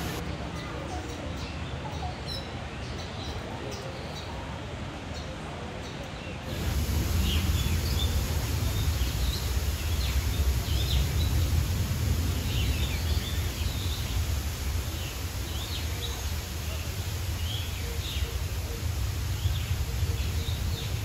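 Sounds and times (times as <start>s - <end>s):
waterfall rushing: 0.0s - 0.2s, 6.5s - 21.0s
small birds chirping: 0.0s - 4.4s, 6.0s - 21.0s.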